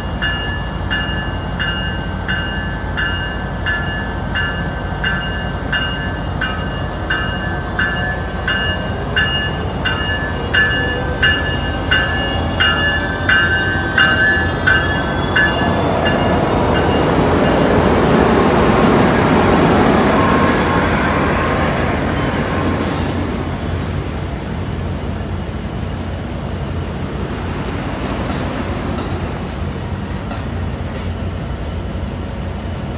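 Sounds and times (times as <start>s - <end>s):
locomotive bell ringing: 0.0s - 23.1s
train rumble and wheel noise: 0.0s - 32.9s.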